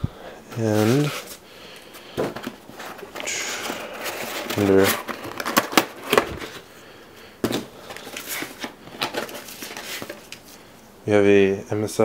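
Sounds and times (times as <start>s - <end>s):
cardboard box being handled: 2.2s - 6.6s.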